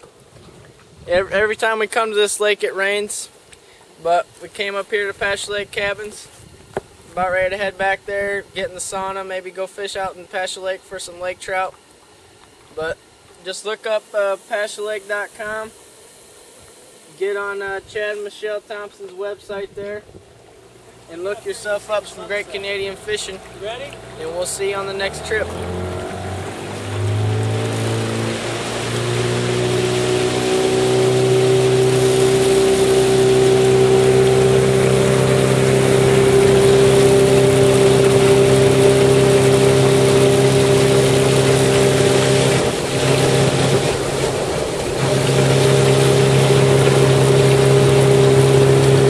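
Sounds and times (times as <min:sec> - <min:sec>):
outboard motor running: 0:19.5 - 0:49.0.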